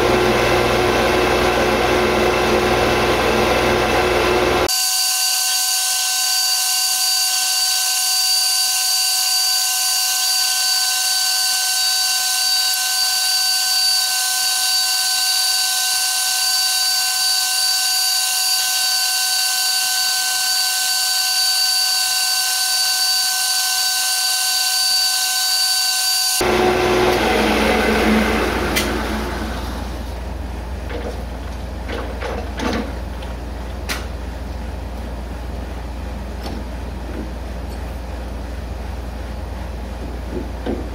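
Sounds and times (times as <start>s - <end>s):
metal lathe whine: 0.0s - 30.6s.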